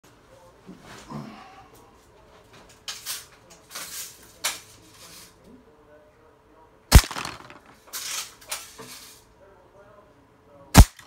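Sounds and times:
scraping rustling handling noises: 2.1s - 5.5s, 7.1s - 9.3s
bb gun shot crack: 6.9s - 7.7s, 10.8s - 11.0s.

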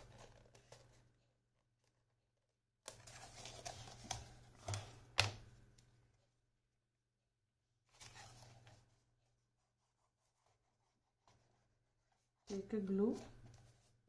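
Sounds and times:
paper rustling: 0.0s - 2.1s, 2.9s - 5.3s, 7.9s - 12.5s.

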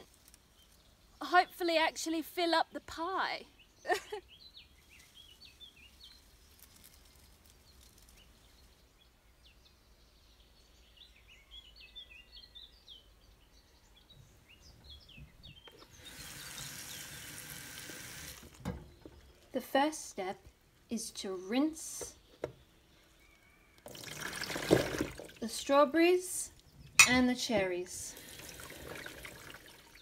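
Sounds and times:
birds chirping: 0.0s - 30.0s
tap water running into bowl: 16.1s - 18.8s, 23.8s - 25.4s, 28.2s - 30.0s.

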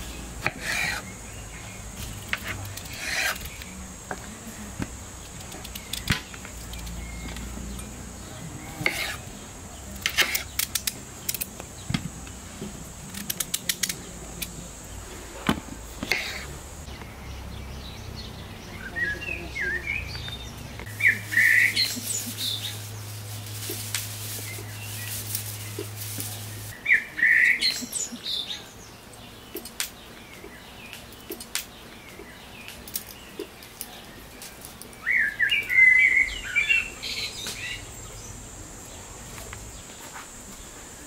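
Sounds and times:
birds chirping: 0.0s - 41.0s
knife chopping on wooden board: 8.8s - 9.2s.

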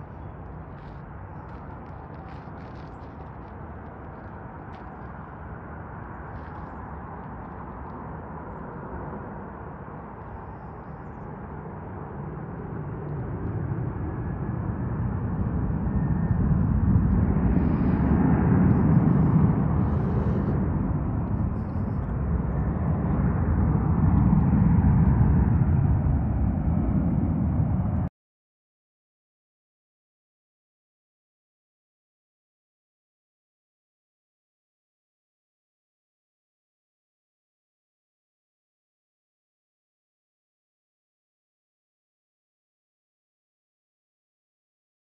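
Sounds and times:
jet engine rumble: 0.0s - 28.1s.

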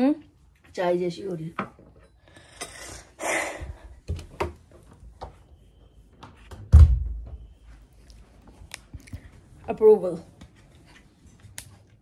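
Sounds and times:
loud dull thump: 6.7s - 7.3s.

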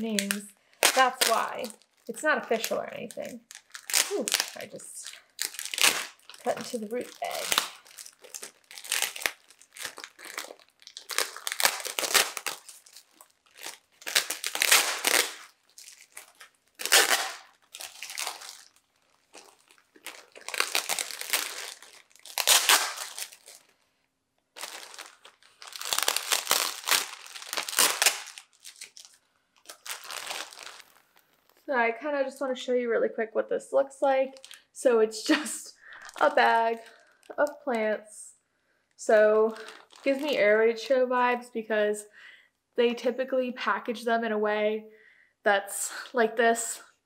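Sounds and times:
plastic bags crinkling: 0.0s - 23.8s, 24.5s - 31.6s, 34.3s - 34.6s, 35.3s - 37.8s, 39.1s - 40.6s
packing tape peeling: 5.4s - 23.7s, 24.6s - 31.0s.

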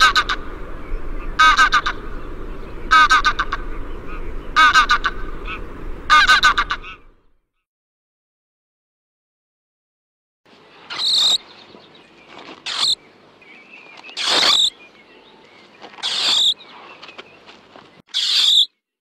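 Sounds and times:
high-pitched bird calls: 0.0s - 7.2s, 10.8s - 18.8s
steady outdoor hiss: 0.0s - 7.3s, 10.5s - 18.7s.

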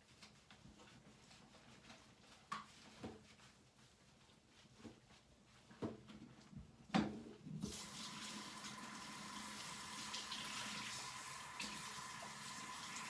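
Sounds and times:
shower sprayer running water: 7.6s - 13.0s.

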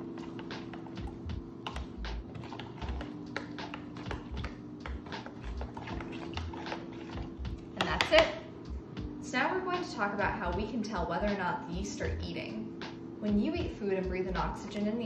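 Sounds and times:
spoon clicking and scraping bowl: 0.0s - 8.2s.

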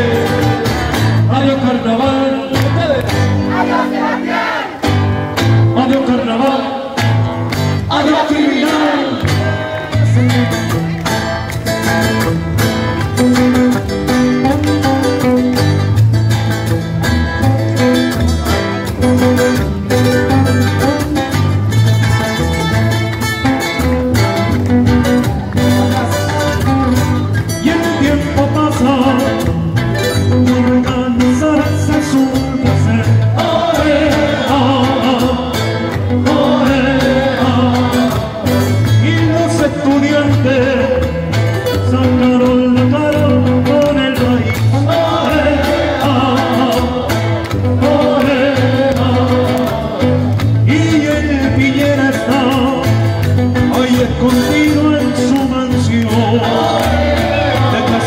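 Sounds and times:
electric guitar: 0.0s - 58.0s
strummed acoustic guitars: 0.0s - 58.0s
voices singing together: 3.2s - 5.0s, 6.0s - 7.1s, 7.8s - 10.6s, 32.6s - 40.7s, 44.1s - 52.7s, 55.9s - 58.0s.

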